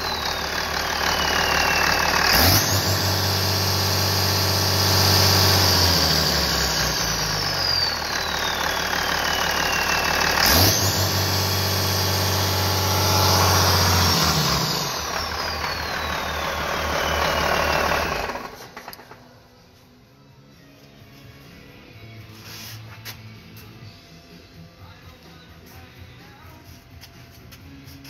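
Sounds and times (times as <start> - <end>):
diesel engine running and revving: 0.0 - 19.2
high whine: 6.9 - 18.6.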